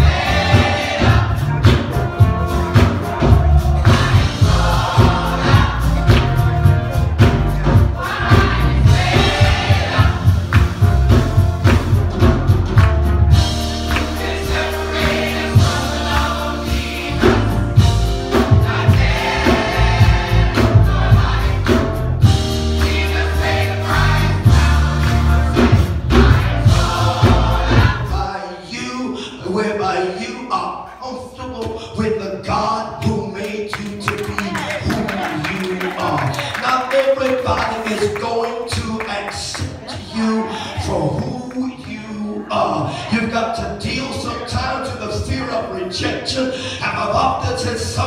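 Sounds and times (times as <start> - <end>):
bass and steady beat: 0.0 - 28.1
gospel choir singing: 0.0 - 30.6, 39.4 - 48.0.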